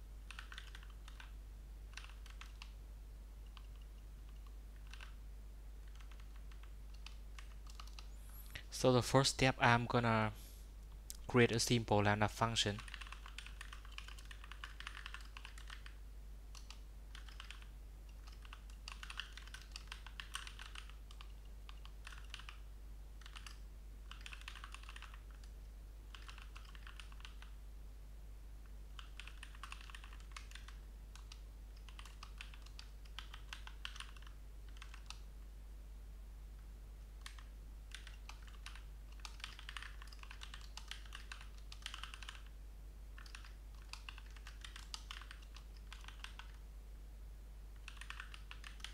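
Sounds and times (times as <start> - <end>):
steady low hum: 0.0 - 48.9
typing on computer keyboard: 0.3 - 1.3, 1.9 - 2.8, 3.4 - 5.2, 5.8 - 8.1, 12.7 - 22.6, 23.2 - 27.6, 28.9 - 35.2, 37.2 - 42.5, 43.2 - 46.6, 47.8 - 48.9.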